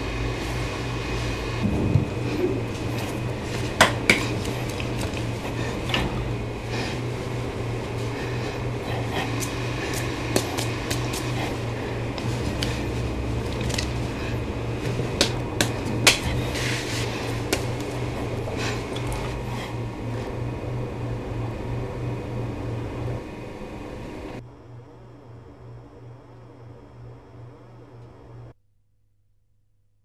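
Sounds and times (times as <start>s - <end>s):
room tone hum: 0.0s - 28.6s
hands slapping and tapping: 9.4s - 11.4s
sleeve rustle: 15.8s - 19.4s.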